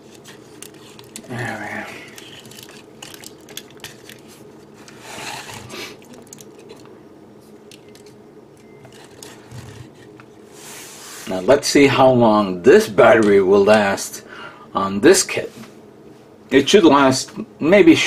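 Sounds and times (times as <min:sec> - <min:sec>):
plastic parts rubbing: 0:00.0 - 0:06.9, 0:08.8 - 0:10.3
plastic parts clicking: 0:06.0 - 0:06.9.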